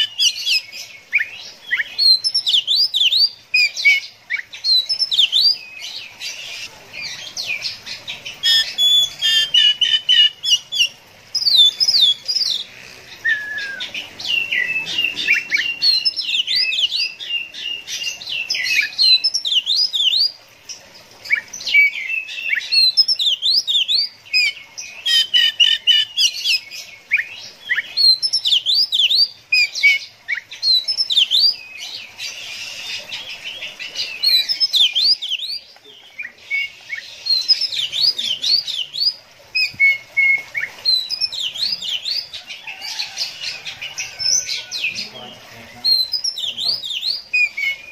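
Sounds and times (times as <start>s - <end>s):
bird singing whistles and trills: 0.0s - 5.9s, 8.4s - 12.6s, 13.2s - 20.4s, 21.3s - 33.5s, 34.1s - 42.3s, 45.7s - 47.9s.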